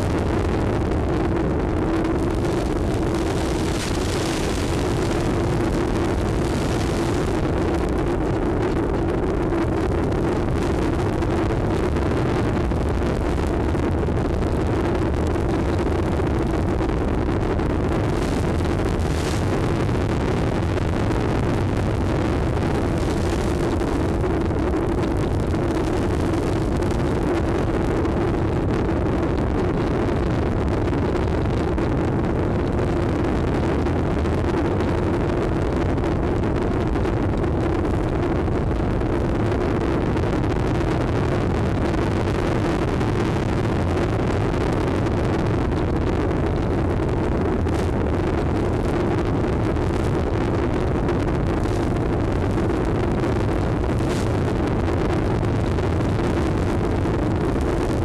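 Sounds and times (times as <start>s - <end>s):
rushing noise: 0.0s - 27.5s, 45.4s - 58.0s
low hum: 0.0s - 58.0s.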